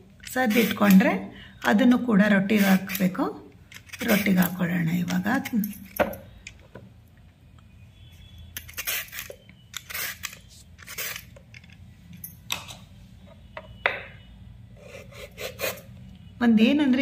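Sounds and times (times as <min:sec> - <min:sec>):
peeler scraping carrot: 0:14.8 - 0:15.9.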